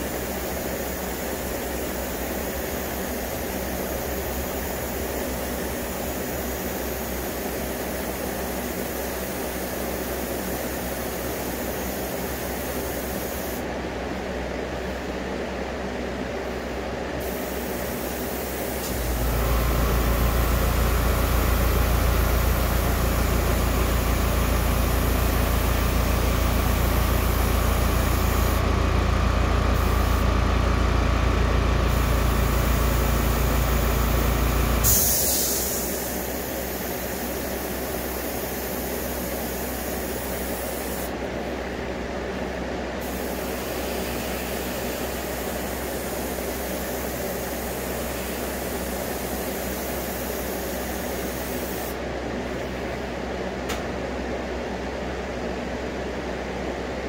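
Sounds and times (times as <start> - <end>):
air compressor motor humming: 0.0 - 53.8
airbrush hissing: 0.1 - 13.6, 17.2 - 28.6, 29.7 - 30.3, 31.9 - 41.1, 43.0 - 52.0
short burst of air hiss: 0.2 - 13.7, 17.2 - 20.8, 31.9 - 41.2, 43.0 - 52.0.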